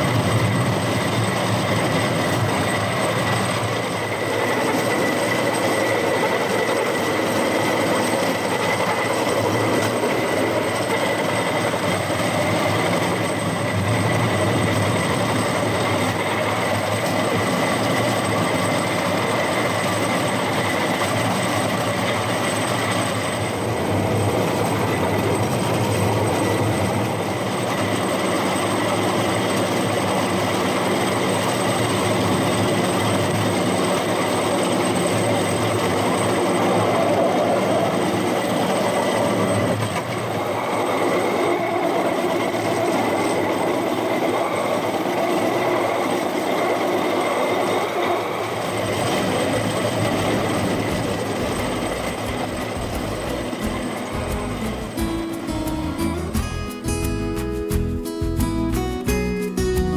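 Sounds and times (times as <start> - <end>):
high whine: 0.0 - 30.1, 48.8 - 59.9
wheels rumbling on rails: 0.0 - 57.1.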